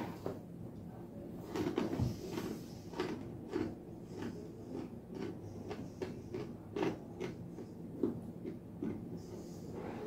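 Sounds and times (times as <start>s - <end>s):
chewing crunchy chickpeas: 1.5s - 9.5s.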